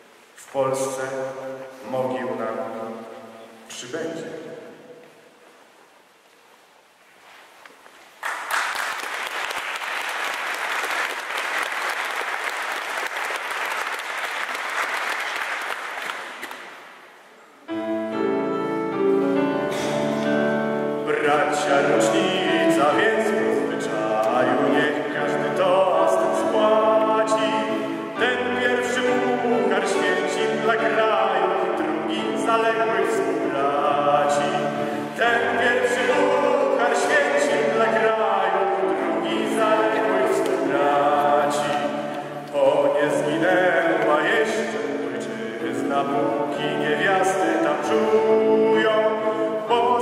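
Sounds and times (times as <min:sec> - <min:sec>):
audience applauding: 0:08.2 - 0:16.9.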